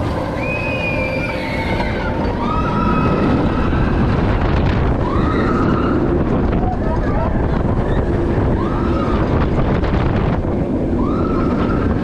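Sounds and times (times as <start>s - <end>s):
roller coaster rumbling on track: 0.0s - 12.0s
wind on microphone: 0.0s - 12.0s
high squeals: 0.3s - 4.2s.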